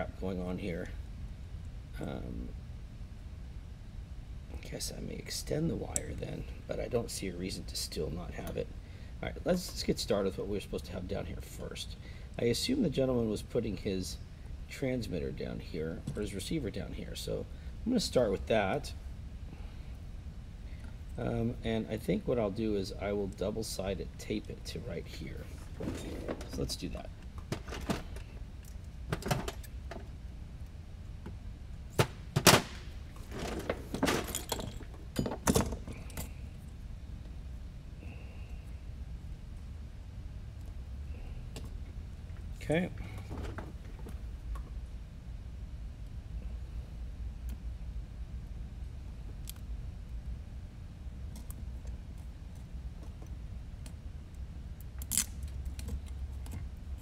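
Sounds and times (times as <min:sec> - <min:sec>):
steady low hum: 0:00.0 - 0:57.0
clicks taps and rustling of parts: 0:31.2 - 0:36.4, 0:55.0 - 0:56.8.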